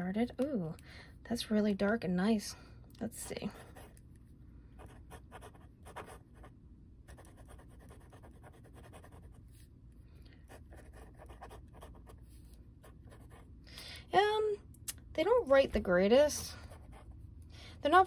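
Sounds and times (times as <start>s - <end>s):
pen scratching on paper: 4.8s - 6.5s, 7.1s - 9.4s, 10.5s - 13.4s.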